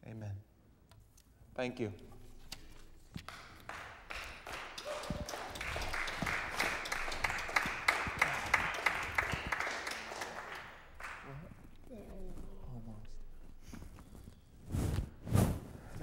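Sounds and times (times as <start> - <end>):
single sharp claps: 3.2 - 11.2
applause: 3.3 - 11.6.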